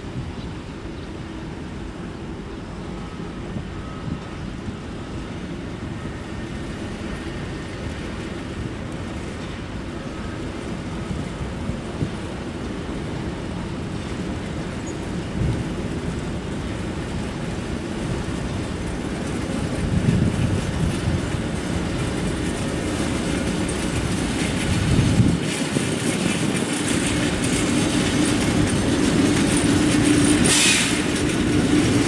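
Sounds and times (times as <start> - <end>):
diesel locomotive running: 0.0 - 32.0
wagon wheels clattering on rails: 14.1 - 32.0.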